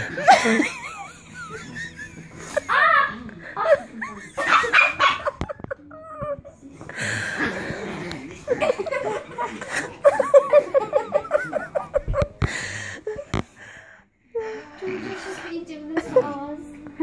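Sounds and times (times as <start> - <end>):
girls giggling and laughing: 0.0 - 6.6, 7.4 - 13.4.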